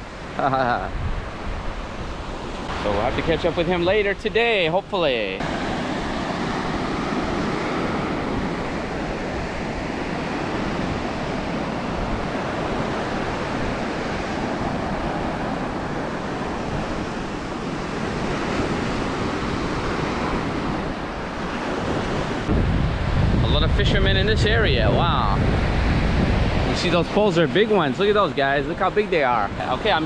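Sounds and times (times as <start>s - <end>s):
ocean surf breaking: 0.0s - 30.0s.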